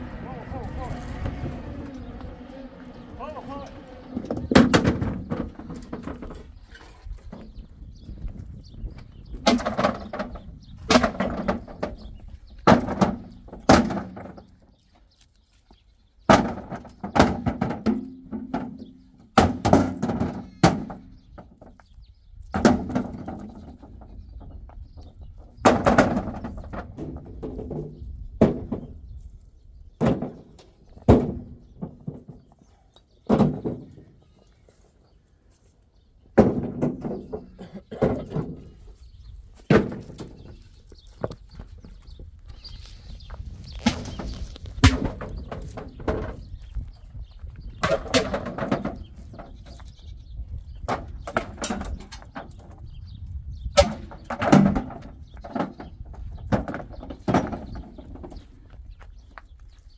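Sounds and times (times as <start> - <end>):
rocks landing in metal trailer: 43.8 - 46.4, 47.8 - 49.6, 53.7 - 58.3.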